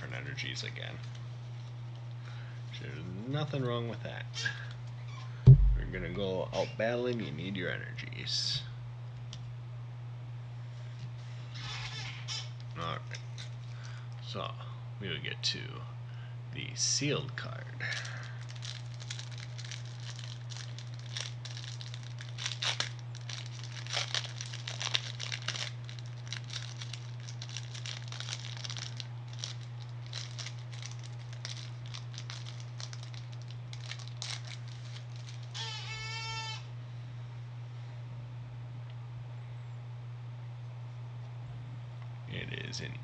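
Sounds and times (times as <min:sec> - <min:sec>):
steady low hum: 0:00.0 - 0:43.0
plastic wrapping crinkling and tearing: 0:13.3 - 0:13.7, 0:17.8 - 0:35.9.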